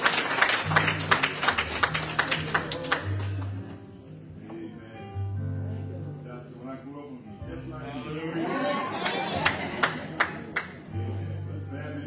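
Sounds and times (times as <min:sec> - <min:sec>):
congregation clapping: 0:00.0 - 0:03.9, 0:09.0 - 0:10.9.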